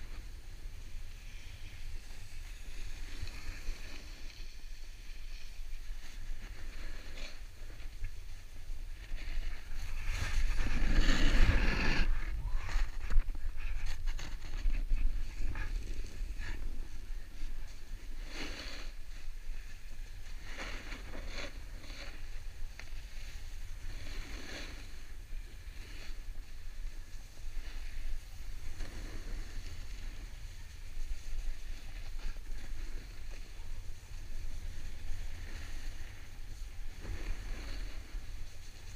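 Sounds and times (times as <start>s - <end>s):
wind rumble on microphone: 0.0s - 18.4s
snowboard scraping packed snow: 0.0s - 38.9s.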